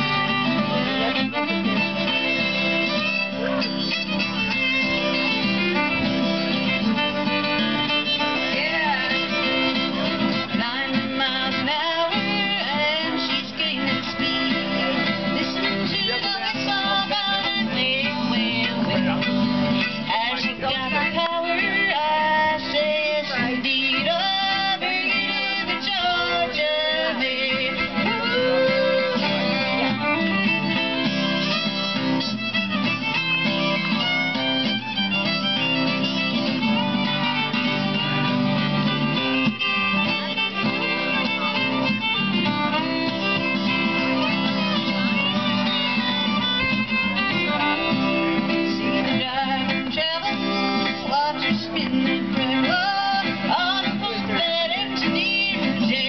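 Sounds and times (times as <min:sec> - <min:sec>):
fiddle melody: 0:00.0 - 0:56.0
guitar accompaniment: 0:00.0 - 0:56.0.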